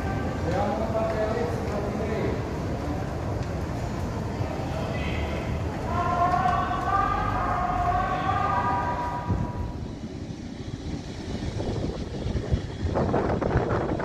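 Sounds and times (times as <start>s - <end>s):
jet engines rumbling: 0.0s - 14.0s
wavering engine whine: 5.6s - 14.0s.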